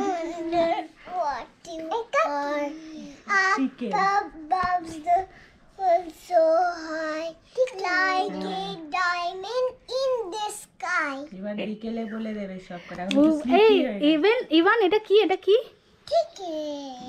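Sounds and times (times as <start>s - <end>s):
girl singing: 1.7s - 11.2s.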